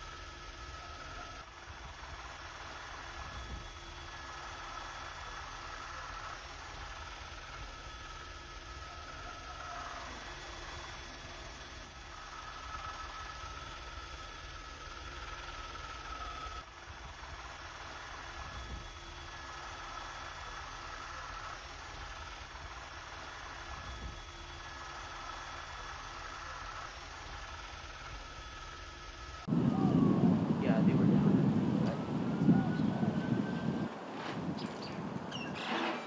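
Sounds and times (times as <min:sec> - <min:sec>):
helicopter engine and rotor drone: 0:00.0 - 0:35.6
faint whining tones: 0:00.0 - 0:36.0.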